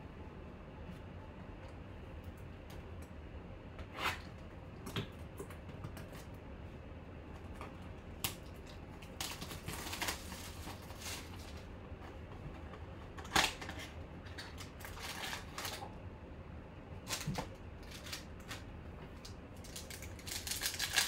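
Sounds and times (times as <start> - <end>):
cardboard packaging crinkling: 9.0 - 11.7, 13.2 - 15.9, 17.0 - 18.7, 19.6 - 21.0.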